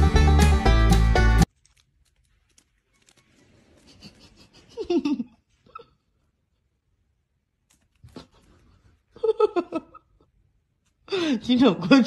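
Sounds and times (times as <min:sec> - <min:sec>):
faint rustling: 0:01.5 - 0:06.8
person laughing breathily: 0:03.8 - 0:06.2, 0:08.1 - 0:10.3.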